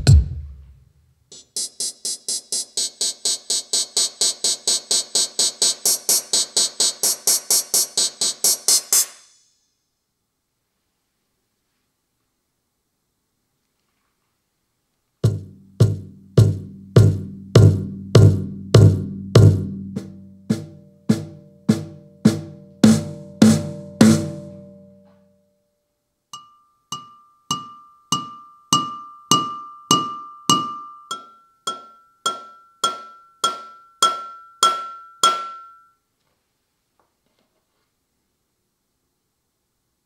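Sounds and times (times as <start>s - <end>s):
ringing metallic hits: 26.4s - 36.0s.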